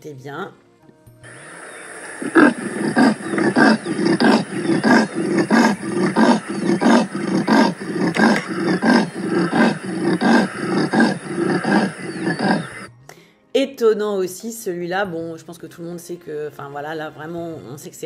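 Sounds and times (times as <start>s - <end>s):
leopard sawing call grunts: 2.0s - 12.9s.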